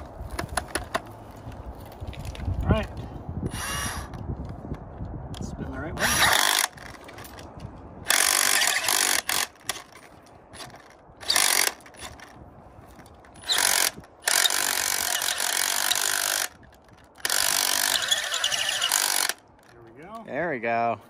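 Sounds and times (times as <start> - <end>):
rotary hammer drill whirring: 3.5 - 4.2, 6.0 - 7.3, 8.1 - 10.0, 10.6 - 12.4, 13.3 - 19.4.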